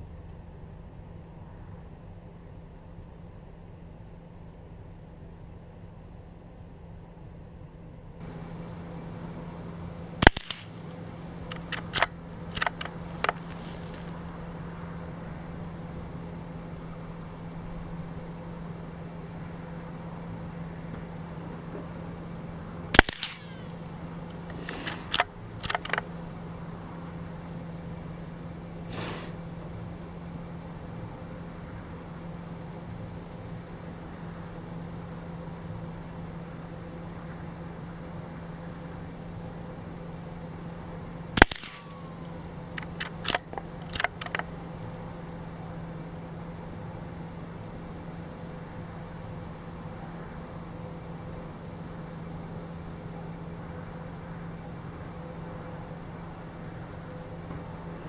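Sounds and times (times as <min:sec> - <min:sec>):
steady low hum: 0:00.0 - 0:58.0
rifle shots: 0:10.1 - 0:13.4, 0:22.9 - 0:23.8, 0:41.4 - 0:42.1
rifle bolt clicks: 0:10.2 - 0:13.5, 0:23.0 - 0:23.5, 0:24.5 - 0:26.1, 0:41.4 - 0:41.8, 0:42.8 - 0:44.5.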